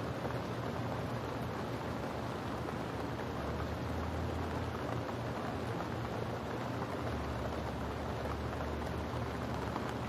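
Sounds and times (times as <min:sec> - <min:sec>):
steady rain falling: 0:00.0 - 0:10.0.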